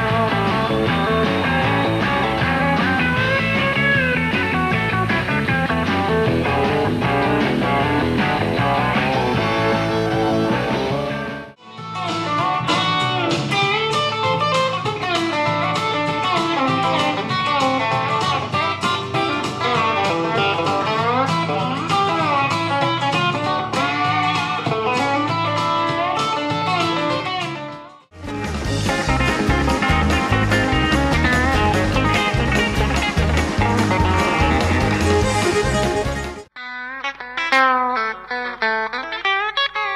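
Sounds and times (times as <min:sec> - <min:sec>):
live country band music: 0:00.0 - 0:39.9
twangy electric guitar picking: 0:00.0 - 0:39.9.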